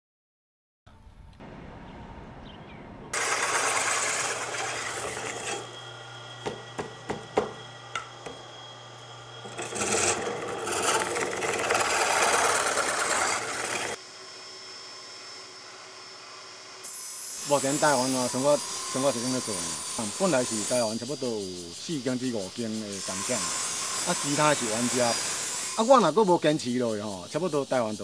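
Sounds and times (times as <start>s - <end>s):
motor hum: 3.1s - 16.8s
boring rod scraping whir: 3.2s - 14.0s, 16.9s - 25.9s
sharp knocks: 6.4s - 8.4s.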